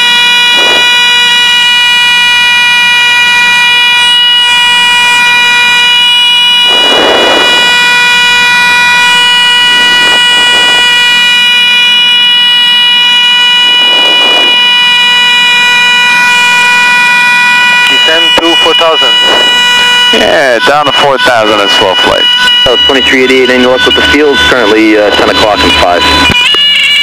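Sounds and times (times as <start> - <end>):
stall warning horn buzzing: 0.0 - 27.0
muffled noises: 17.9 - 26.3.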